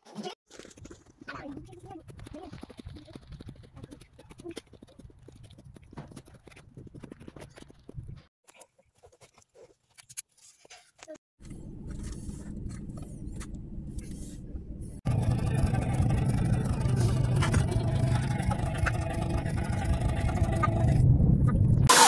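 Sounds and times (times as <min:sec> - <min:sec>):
car engine and road noise: 0:11.4 - 0:22.0.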